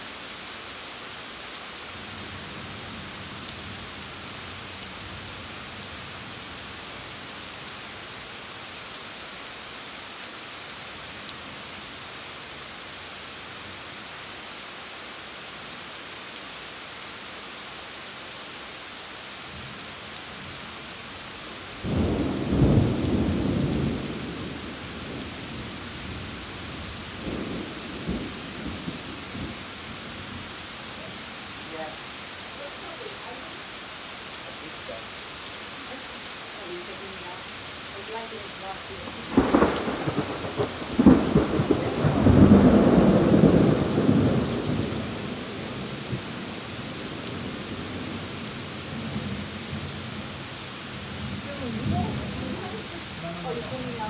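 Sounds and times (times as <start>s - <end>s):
steady rain hissing: 0.0s - 54.0s
thunder rumbling: 21.8s - 30.4s, 39.0s - 48.1s.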